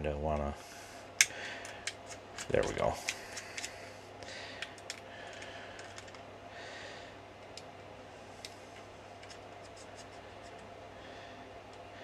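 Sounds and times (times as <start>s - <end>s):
soft breaths: 2.9s - 7.3s, 9.7s - 12.0s.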